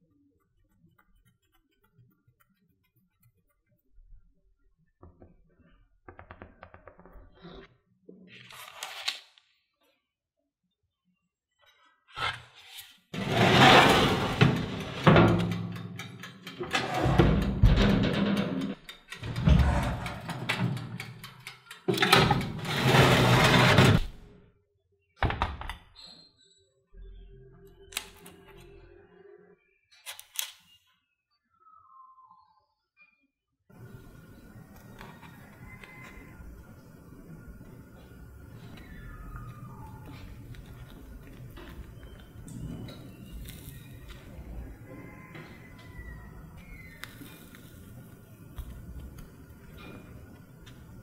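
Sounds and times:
paper rustling: 8.3 - 9.4.

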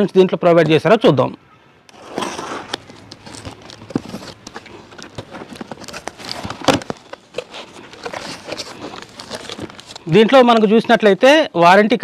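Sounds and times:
packing tape scraping and ripping: 1.9 - 10.6
cardboard flaps rustling: 1.9 - 11.1.

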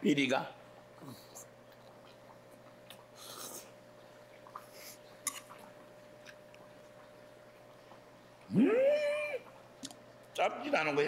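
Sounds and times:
low steady hum: 0.0 - 11.0
person slurping: 3.2 - 3.8
person chewing: 4.4 - 6.7
man humming mmm: 8.5 - 9.4.

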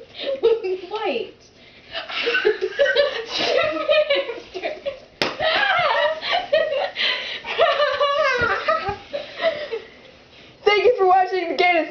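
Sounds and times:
girls laughing and giggling: 0.0 - 1.0, 1.9 - 10.1.

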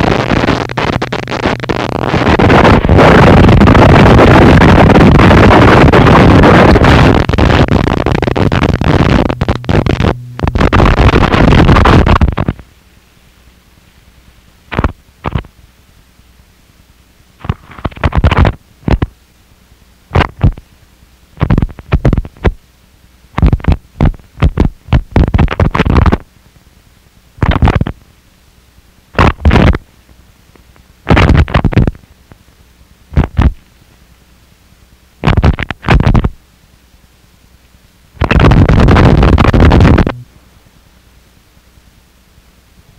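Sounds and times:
loud distorted noise blasts: 0.0 - 12.6, 14.7 - 15.5, 17.4 - 19.1, 20.1 - 20.6, 27.4 - 27.9, 29.2 - 29.8, 31.1 - 32.0, 33.1 - 33.6, 35.2 - 36.4, 38.2 - 40.3
quiet hiss: 0.0 - 42.9.

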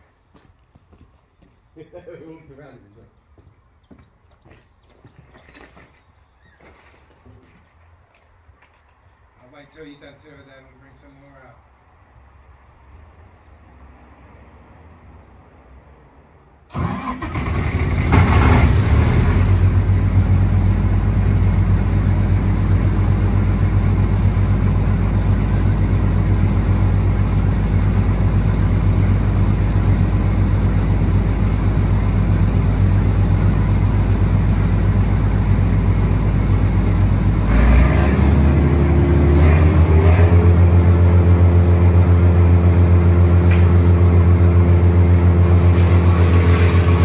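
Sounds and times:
wood chipper engine running: 16.7 - 47.0.

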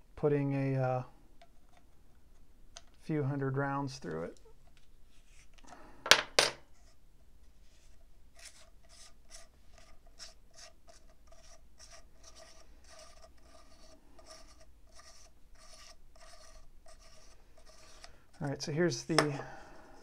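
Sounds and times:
threaded cap scraping as unscrewed: 1.4 - 3.0, 7.7 - 19.2.

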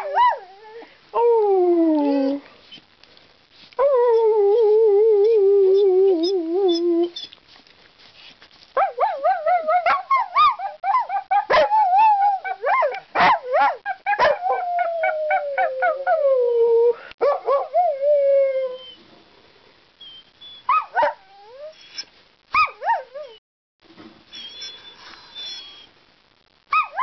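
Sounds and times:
dog whining: 0.0 - 2.5, 3.8 - 7.4, 20.0 - 23.4, 24.3 - 25.9
dog howling: 9.0 - 18.8.

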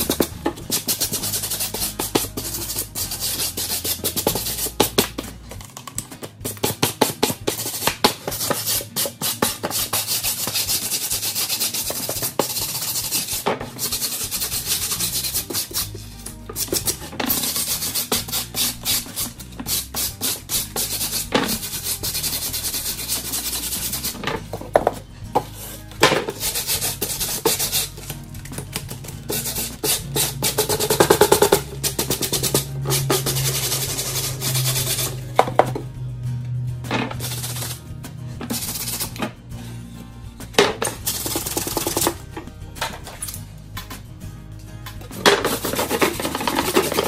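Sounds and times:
brush scrubbing foam board: 0.0 - 5.0, 6.5 - 24.3, 25.4 - 28.1, 28.7 - 35.6, 37.2 - 37.8, 38.5 - 39.2, 41.0 - 42.2, 45.2 - 47.0
background music: 0.0 - 47.0.

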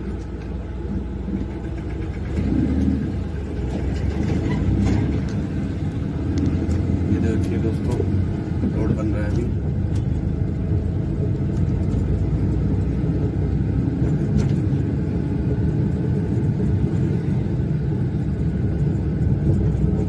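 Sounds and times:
truck engine rumble: 0.0 - 20.0
tyre noise on rough road: 0.0 - 20.0.

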